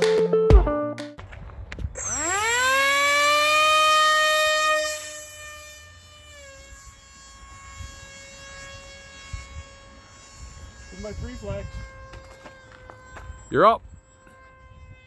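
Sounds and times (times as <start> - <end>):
electric motor propeller whine: 1.9 - 15.0.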